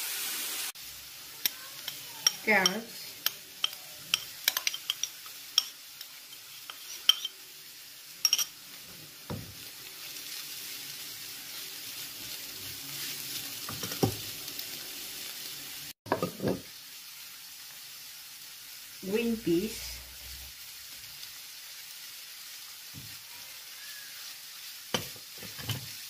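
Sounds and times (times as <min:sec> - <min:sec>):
vegetables sizzling in oil: 0:00.0 - 0:26.0
spatula scraping a pan: 0:03.6 - 0:07.4.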